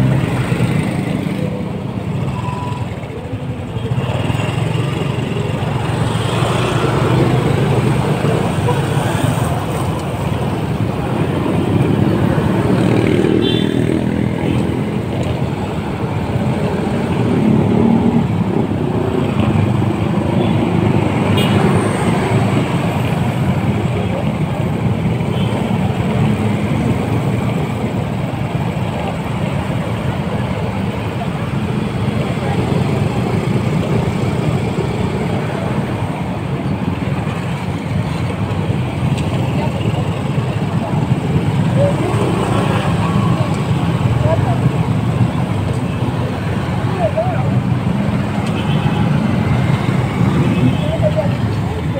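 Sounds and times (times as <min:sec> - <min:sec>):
scooter engine and road noise: 0:00.0 - 0:51.9
surrounding motorcycle engines: 0:00.0 - 0:51.9.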